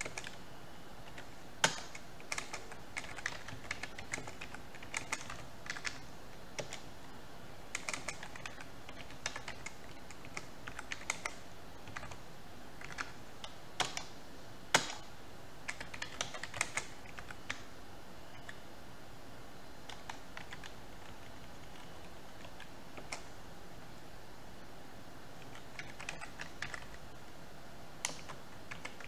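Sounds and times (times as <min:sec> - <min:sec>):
typing on keyboard: 0:00.0 - 0:00.4, 0:01.0 - 0:06.8, 0:07.7 - 0:12.2, 0:12.8 - 0:14.1, 0:14.7 - 0:15.1, 0:15.7 - 0:17.7, 0:19.8 - 0:23.3, 0:25.4 - 0:27.0, 0:28.0 - 0:29.0.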